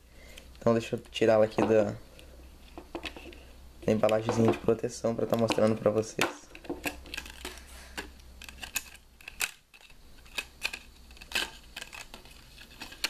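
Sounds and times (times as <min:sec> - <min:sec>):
plastic sheath clicking and scraping: 0:06.5 - 0:13.0.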